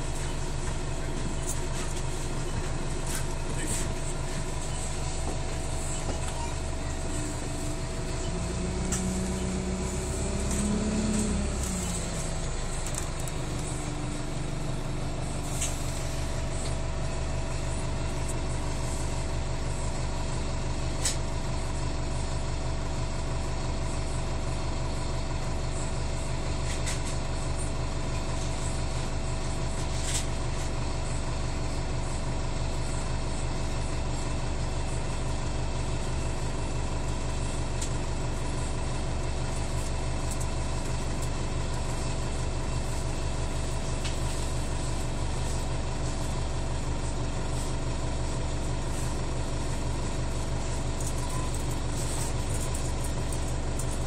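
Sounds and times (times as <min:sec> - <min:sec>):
steady whine: 0:00.0 - 0:20.3, 0:36.0 - 0:54.0
bus interior low drone: 0:00.0 - 0:54.0.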